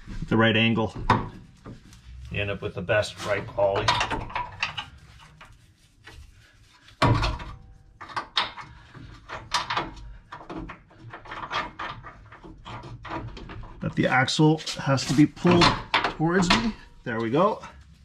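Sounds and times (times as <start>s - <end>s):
metal clunks and clicks: 3.7s - 4.9s, 7.0s - 13.8s, 15.4s - 17.0s.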